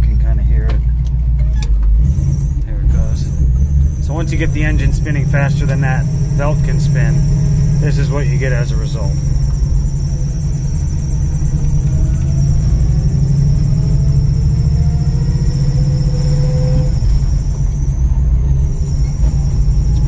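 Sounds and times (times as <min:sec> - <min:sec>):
car engine accelerating: 0:00.0 - 0:20.0
belt squeal: 0:01.4 - 0:20.0.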